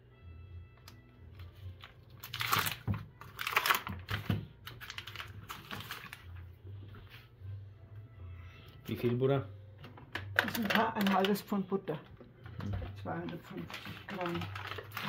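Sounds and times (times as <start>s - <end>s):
foil wrapper crinkling: 1.6s - 6.3s, 13.1s - 15.0s.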